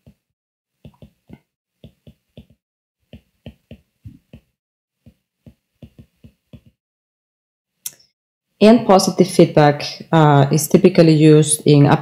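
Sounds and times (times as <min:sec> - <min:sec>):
stylus tapping on a screen: 0:00.8 - 0:06.8.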